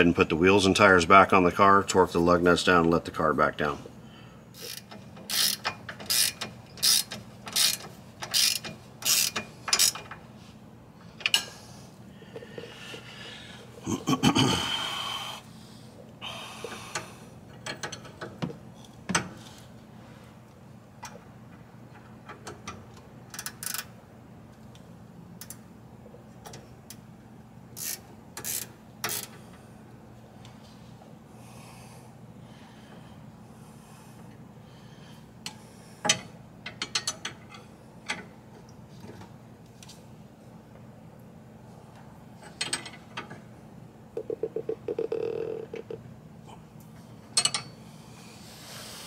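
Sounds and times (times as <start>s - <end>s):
ratchet wrench strokes: 4.6s - 10.1s, 27.8s - 29.3s
low steady hum: 24.3s - 49.0s.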